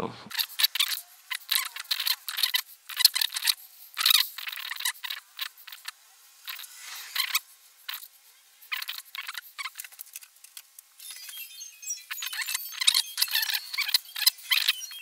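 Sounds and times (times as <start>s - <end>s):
pencil scratching on paper: 0.3s - 10.0s.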